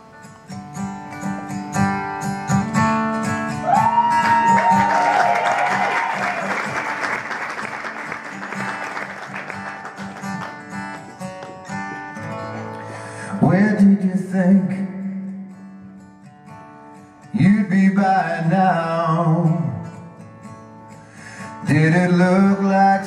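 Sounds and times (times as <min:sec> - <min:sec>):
acoustic guitar strumming: 0:00.0 - 0:23.0
audience whooping and applauding: 0:03.6 - 0:11.1.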